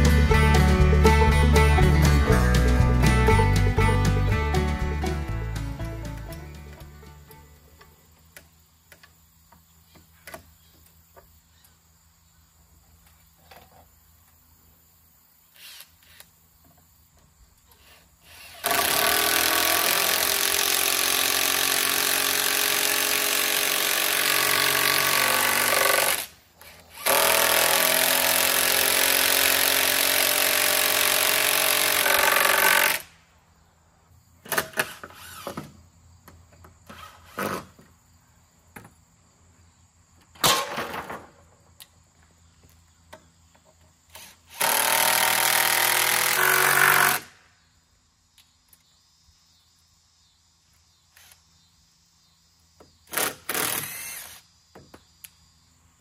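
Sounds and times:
impact driver running: 18.4 - 33.1, 44.2 - 47.3, 53.1 - 54.4.

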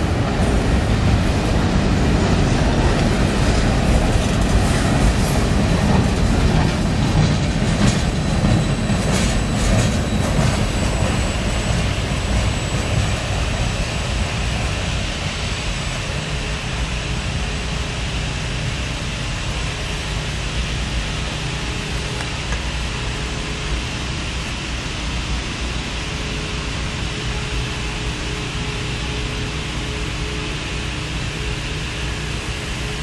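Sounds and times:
wheels clacking over rail joints: 0.0 - 14.7
freight train cars rumbling past: 0.0 - 33.0.

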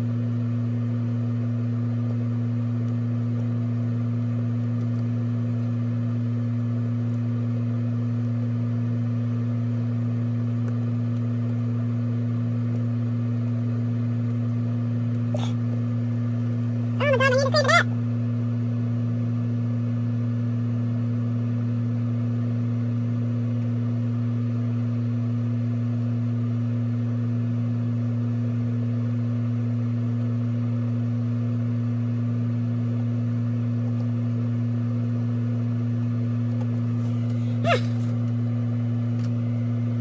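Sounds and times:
deep steady hum: 0.0 - 40.0
brief high-pitched cry: 37.5 - 38.0.

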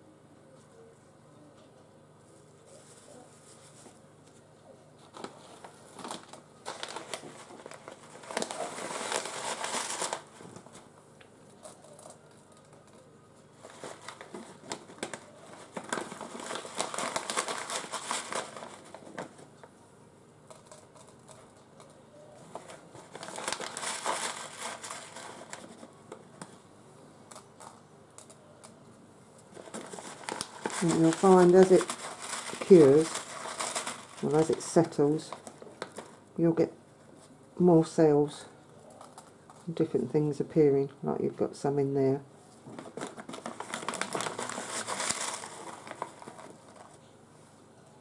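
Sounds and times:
plastic crinkling and rustling: 2.6 - 19.8, 20.5 - 26.6, 29.4 - 37.3, 42.5 - 47.2.

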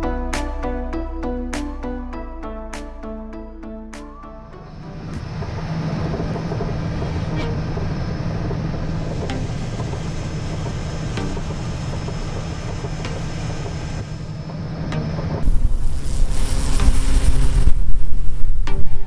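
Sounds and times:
loud rough engine noise: 4.7 - 17.9
aircraft engine and propeller: 4.8 - 18.4.

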